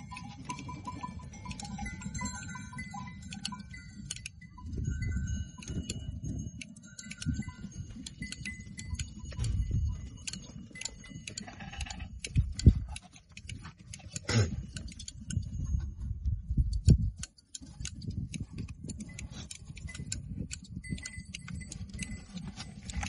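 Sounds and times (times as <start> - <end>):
wind rumbling on microphone: 0.0 - 23.0
goat bleat: 11.3 - 12.2.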